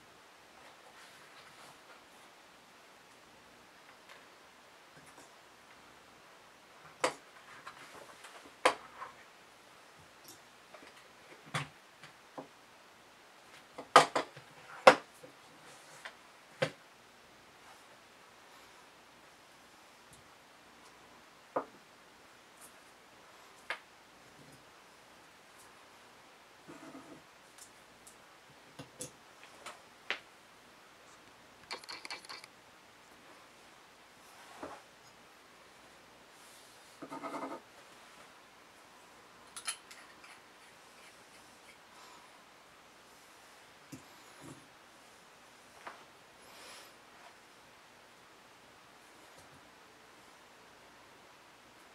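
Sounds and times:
pen parts clicking and tapping: 31.6s - 32.5s
quick run of small clicks: 31.6s - 32.5s.

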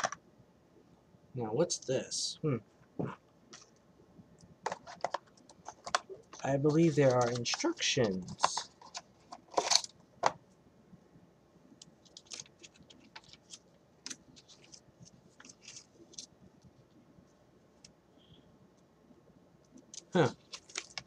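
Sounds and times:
packaging clicks and rustles: 4.6s - 10.4s, 11.8s - 16.3s, 19.8s - 21.0s
paper leaflet rustling: 4.7s - 9.9s, 12.1s - 16.3s.

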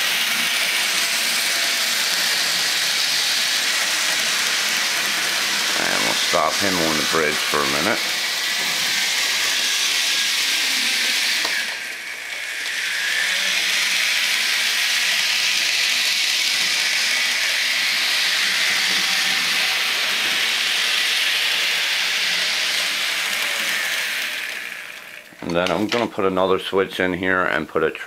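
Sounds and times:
loud steady hiss: 2.7s - 11.5s.

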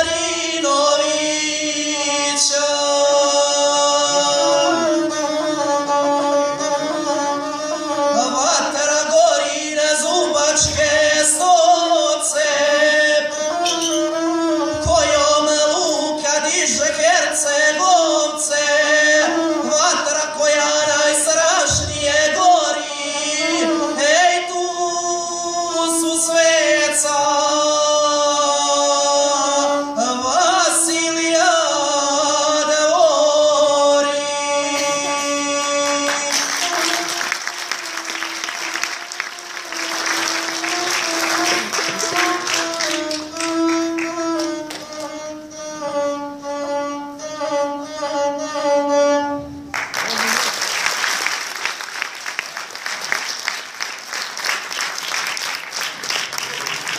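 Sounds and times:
man singing: 0.0s - 37.2s
bowed single-string instrument: 0.0s - 49.8s.

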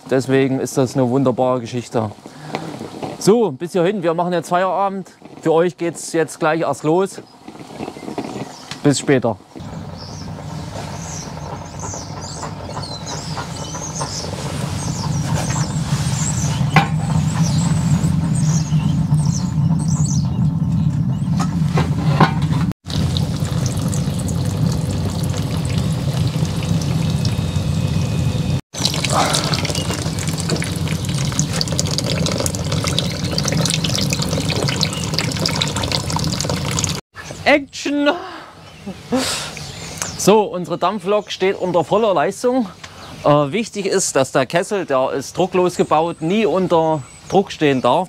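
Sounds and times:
liquid trickling into bucket: 22.9s - 27.4s, 28.8s - 37.0s
steam rushing: 22.9s - 36.6s.

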